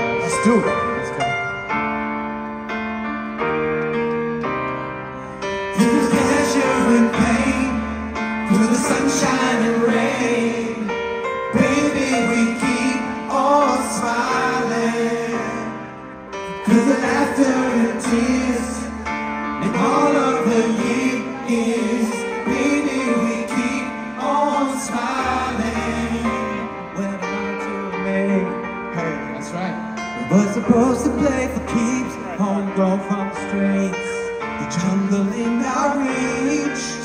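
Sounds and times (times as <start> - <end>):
piano chords: 0.0 - 37.0
male vocal group singing: 5.7 - 29.3, 30.2 - 37.0.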